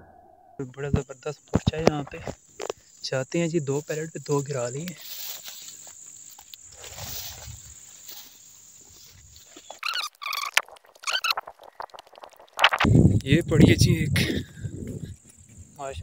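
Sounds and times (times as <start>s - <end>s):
high insect trill: 0.6s - 16.0s
footsteps swishing through grass: 5.0s - 9.7s
bird calling: 9.4s - 11.8s.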